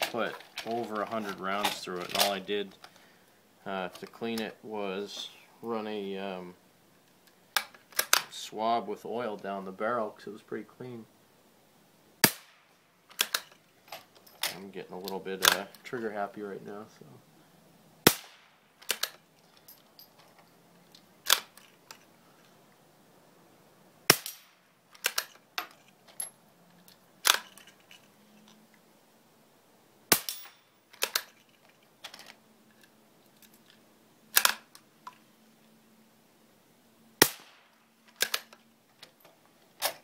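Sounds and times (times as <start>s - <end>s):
rifle shots cracking: 12.2s - 12.6s, 18.0s - 19.0s, 30.1s - 30.6s, 37.2s - 38.4s
rifle bolt clicks: 13.1s - 13.6s, 38.1s - 38.6s.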